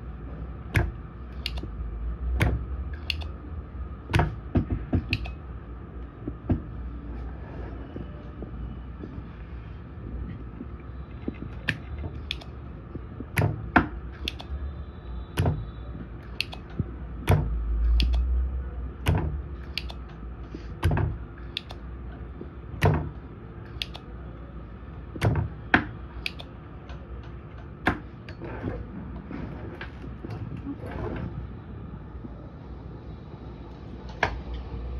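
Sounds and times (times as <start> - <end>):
steady low hum: 0.0 - 34.9
soldering iron tapping circuit board: 0.8 - 1.7, 2.4 - 3.4, 13.2 - 14.6, 16.2 - 18.4, 19.6 - 20.1.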